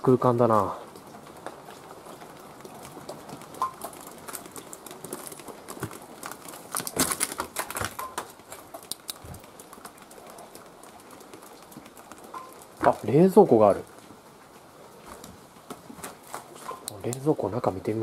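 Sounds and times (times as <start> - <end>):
footsteps crunching on broken glass: 1.5 - 10.4.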